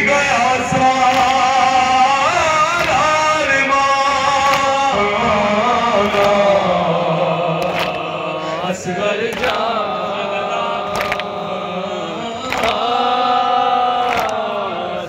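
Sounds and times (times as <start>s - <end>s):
men chanting through loudspeaker: 0.0s - 15.0s
sharp chest-beating slaps: 10.9s - 11.3s.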